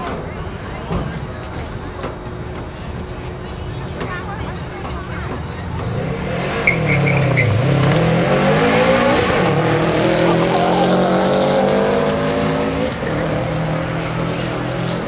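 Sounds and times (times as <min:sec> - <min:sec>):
drag cars accelerating: 0:05.5 - 0:15.0.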